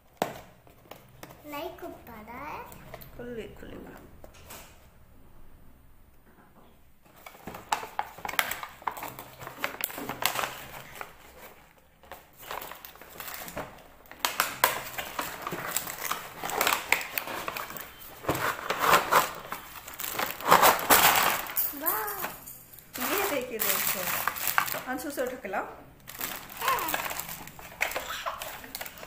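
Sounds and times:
cardboard box tearing and crinkling: 0:14.9 - 0:21.4, 0:26.1 - 0:29.0.

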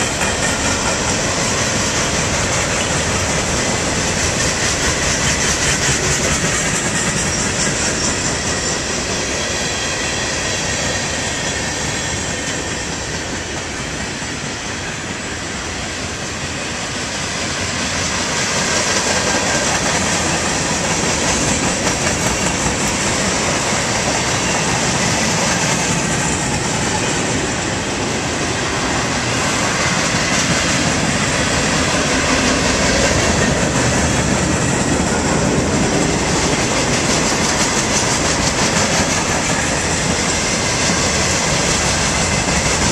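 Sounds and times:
freight train rolling past: 0:00.0 - 0:42.9.

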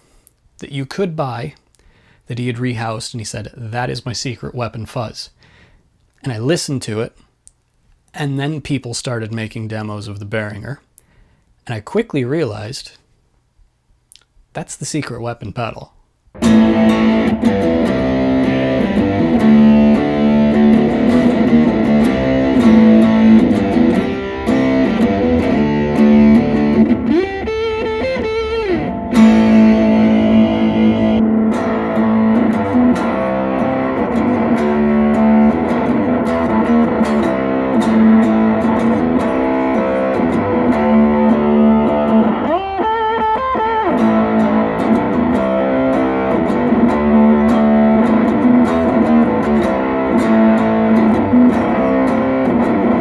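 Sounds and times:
fuzzed electric guitar: 0:16.3 - 0:53.0.

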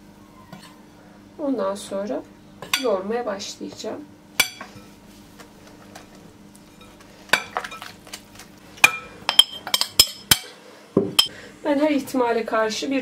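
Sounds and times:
utensils clinking against bowls: 0:06.7 - 0:08.1, 0:08.8 - 0:10.6.

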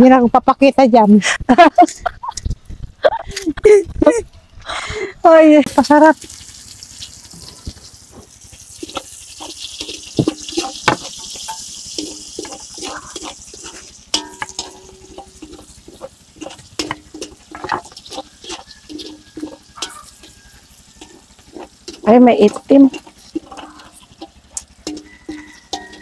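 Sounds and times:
food sizzling in oil: 0:05.7 - 0:26.0
metal spatula scraping wok: 0:06.6 - 0:26.0.

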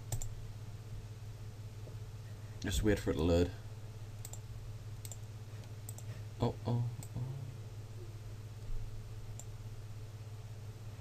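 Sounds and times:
computer mouse clicks: 0:00.0 - 0:00.3, 0:04.2 - 0:04.4, 0:05.0 - 0:06.1
low microphone hum: 0:00.0 - 0:11.0.

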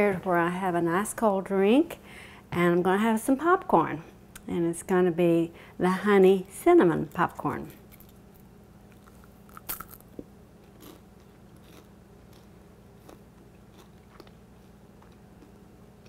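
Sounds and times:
crunching and chewing popcorn: 0:08.9 - 0:16.0.

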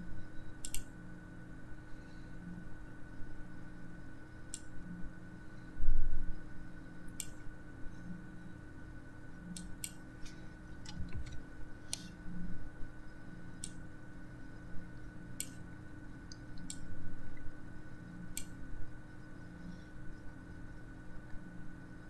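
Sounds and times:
steady hum with high whine: 0:00.0 - 0:22.0
sharp computer clicks: 0:00.6 - 0:01.0, 0:07.1 - 0:07.4, 0:09.5 - 0:10.0, 0:15.4 - 0:15.6, 0:16.3 - 0:16.9, 0:18.3 - 0:18.6.

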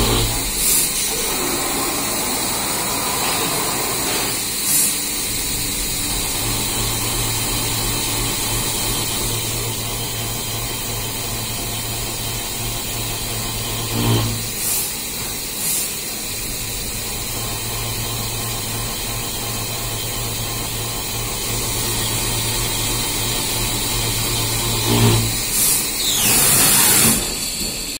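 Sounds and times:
machine hum: 0:00.0 - 0:04.4, 0:05.2 - 0:14.6, 0:16.3 - 0:27.9
coolant spray hiss: 0:00.2 - 0:07.8
short hissing bursts: 0:03.2 - 0:05.3.

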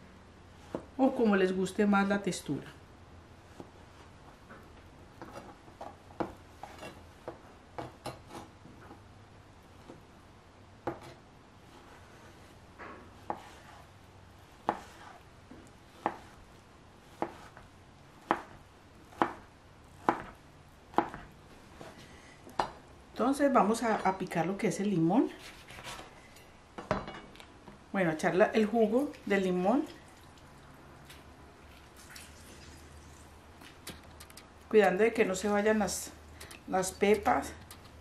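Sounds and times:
knife chopping on plastic board: 0:10.8 - 0:11.2, 0:14.6 - 0:15.2, 0:15.9 - 0:16.4, 0:17.1 - 0:17.6, 0:18.2 - 0:22.0.

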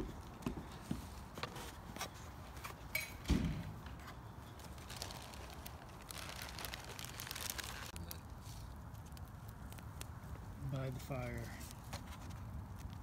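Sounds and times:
campfire crackling and popping: 0:04.6 - 0:11.0.

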